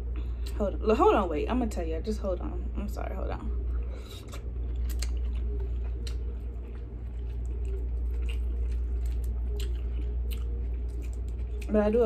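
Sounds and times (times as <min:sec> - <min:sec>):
muffled bass music through floor: 0:03.2 - 0:12.0
chewing: 0:03.7 - 0:12.0.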